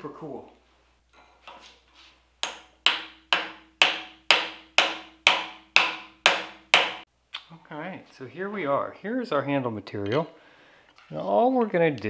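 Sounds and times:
mallet hammering metal: 2.4 - 7.1.

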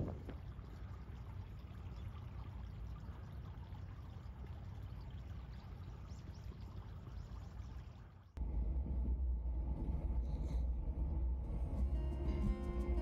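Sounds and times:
wind buffeting microphone: 0.0 - 0.7.

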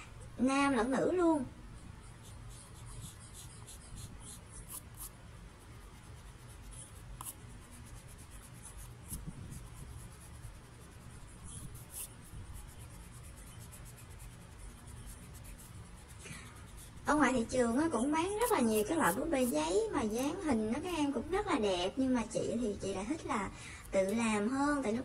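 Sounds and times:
pencil scratching on paper: 1.8 - 21.6.

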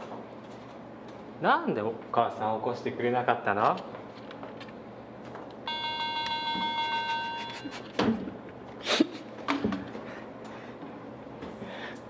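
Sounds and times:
bright ringing tone: 5.7 - 7.9.

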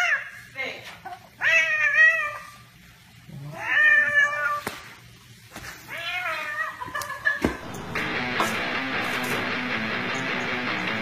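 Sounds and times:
cat yowling: 1.4 - 2.6, 3.5 - 4.6, 5.9 - 7.0.

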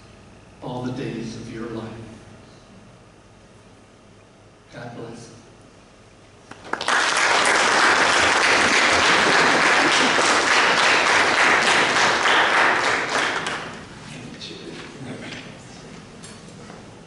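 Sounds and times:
audience applauding: 6.5 - 13.9.

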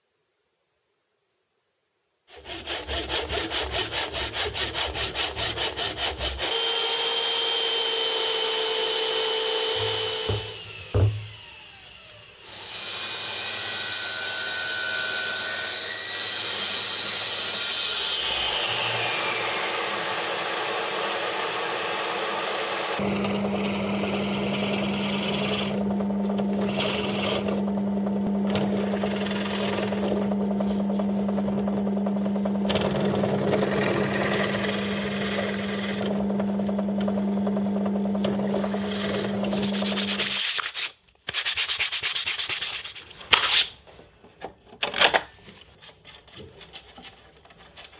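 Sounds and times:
table saw cutting plywood: 2.3 - 40.6
drill bit boring into wood: 6.4 - 12.2, 26.5 - 27.6, 28.5 - 30.4, 32.7 - 36.8
drill press motor humming: 6.8 - 12.4, 22.3 - 39.8.

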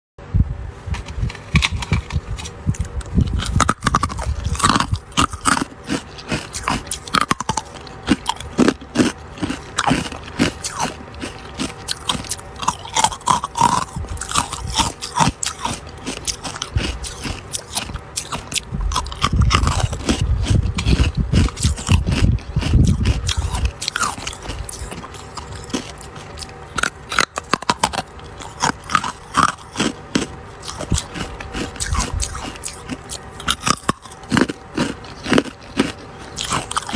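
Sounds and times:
low rumble: 0.2 - 15.4
ice crunching as chewed: 1.0 - 36.9.

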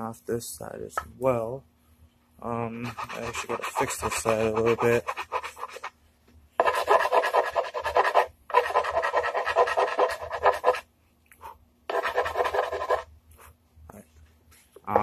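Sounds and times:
hand file rasping on wood: 2.8 - 5.9, 6.6 - 10.8, 11.9 - 13.1.

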